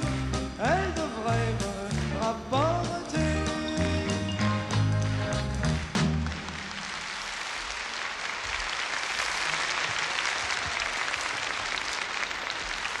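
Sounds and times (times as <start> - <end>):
audience applauding: 0.0 - 0.6, 3.8 - 13.0.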